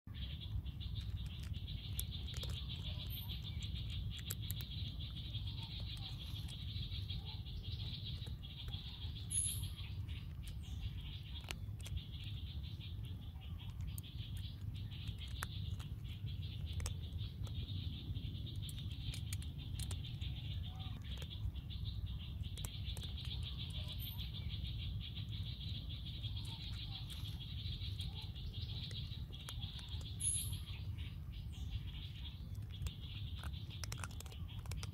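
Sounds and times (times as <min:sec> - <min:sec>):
faint clicks: 0:32.2 - 0:34.9.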